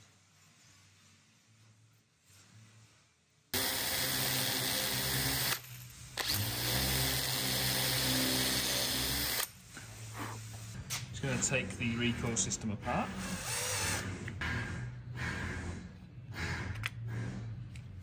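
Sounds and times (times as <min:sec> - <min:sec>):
cordless drill running: 0:03.6 - 0:09.5, 0:13.2 - 0:14.0.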